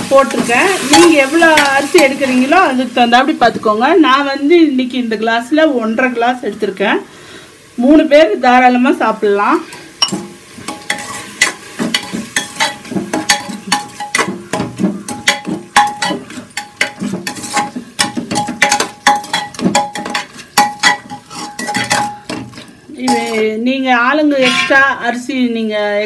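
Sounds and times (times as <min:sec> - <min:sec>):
food frying in oil: 0:00.0 - 0:26.0
spatula scraping metal pot: 0:10.6 - 0:23.6, 0:24.4 - 0:25.0.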